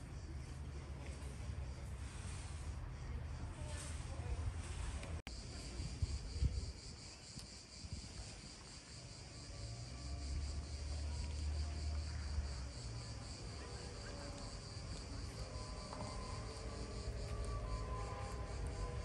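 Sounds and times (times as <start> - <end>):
insects chirring: 5.3 - 19.0.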